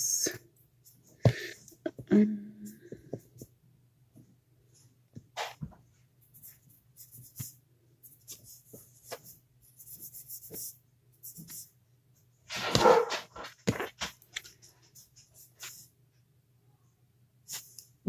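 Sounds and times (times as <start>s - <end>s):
low steady hum: 0.0s - 12.4s.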